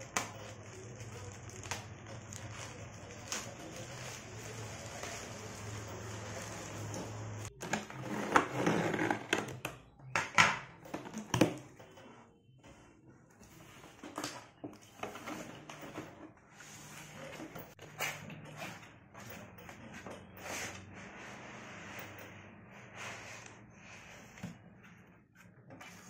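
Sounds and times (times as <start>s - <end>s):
plastic bag rustling and crinkling: 0.0s - 8.2s.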